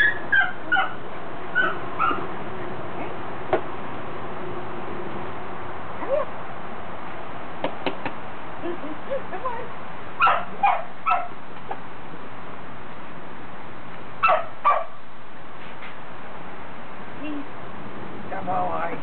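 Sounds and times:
puppy barking and yipping: 0.0s - 2.3s, 10.2s - 11.4s, 14.2s - 15.0s.

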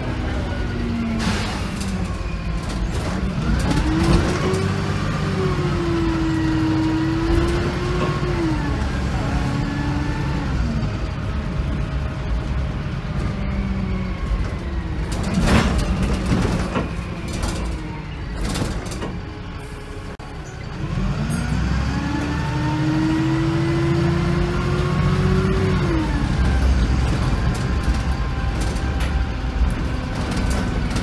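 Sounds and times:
bus diesel engine: 0.0s - 31.0s.

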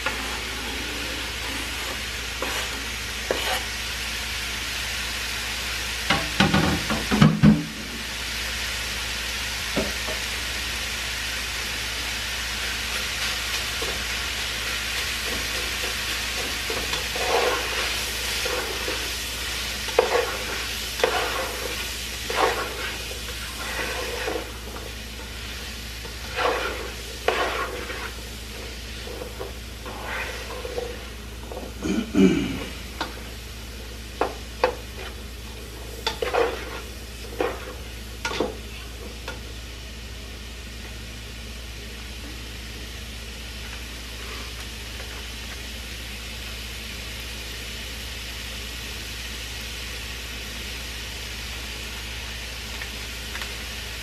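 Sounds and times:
spatula scraping pan: 0.0s - 3.8s, 15.0s - 33.4s, 34.2s - 39.0s
food sizzling in frying pan: 0.0s - 54.0s
knocks on cutting board: 6.1s - 7.7s.

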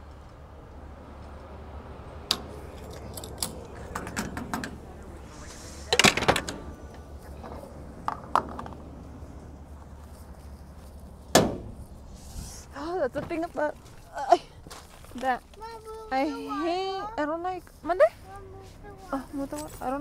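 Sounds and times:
steady low hum: 0.0s - 14.7s
keys clinking and jangling: 2.7s - 4.4s.

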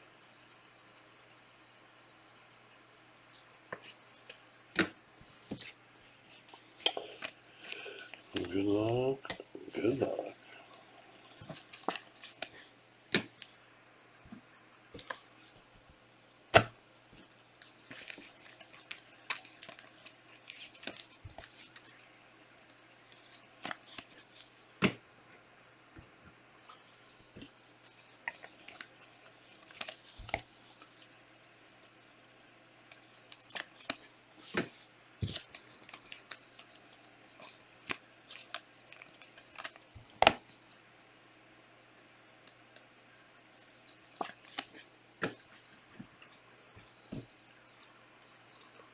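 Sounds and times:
cards clicking and sliding: 6.4s - 10.0s, 10.7s - 13.5s, 32.8s - 40.5s, 43.8s - 45.5s
wrappers rustling and crinkling: 17.2s - 22.0s, 32.8s - 39.9s.

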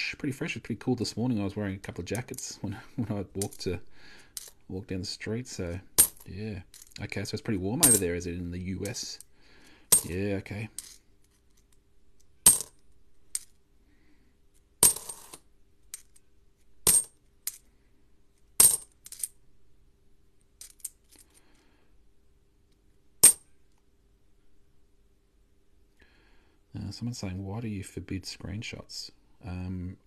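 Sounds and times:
coins clinking: 7.8s - 8.1s, 12.5s - 12.8s, 14.8s - 16.2s, 20.6s - 21.4s, 23.2s - 23.4s.

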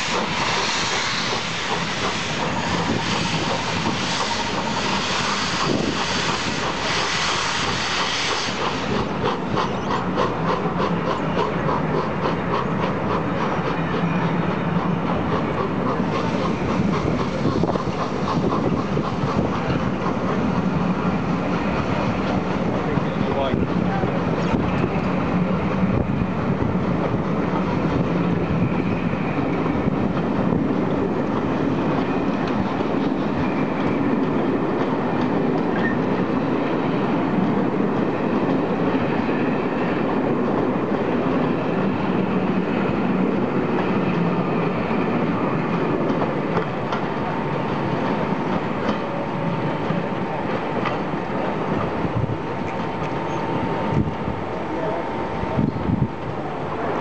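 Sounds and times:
train wheels on rails: 0.0s - 57.0s
wheels clicking over rail joints: 45.7s - 49.2s.

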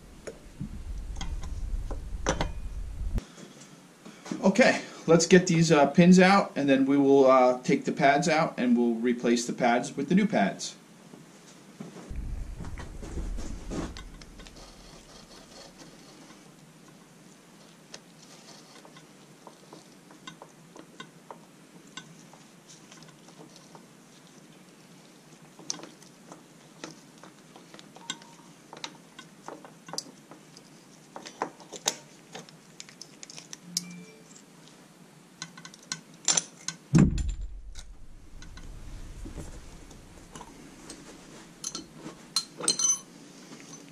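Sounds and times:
loud knock: 12.1s - 15.1s, 36.9s - 40.4s.

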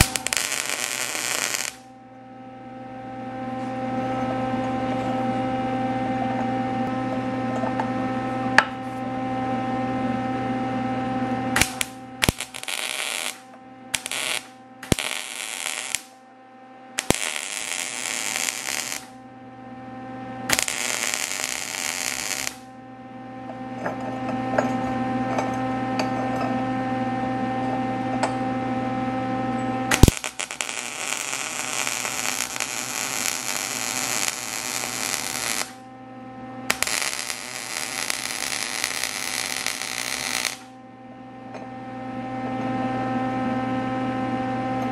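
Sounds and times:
welding arc hissing: 0.0s - 1.9s, 11.6s - 16.2s, 17.0s - 19.2s, 20.5s - 22.7s, 29.9s - 35.8s, 36.7s - 40.7s
electrical hum: 0.0s - 44.9s.

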